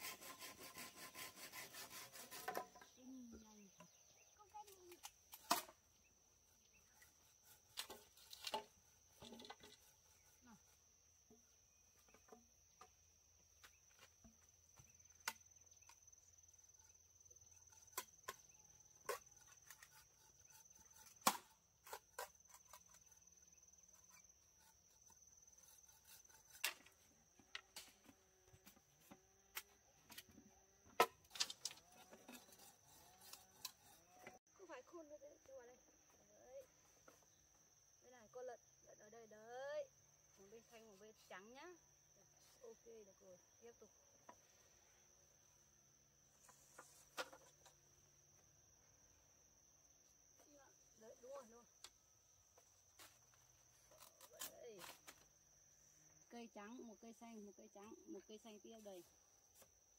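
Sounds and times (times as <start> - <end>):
high insect drone: 0.0 - 59.9
machete striking bamboo: 5.3 - 5.8, 21.2 - 22.0.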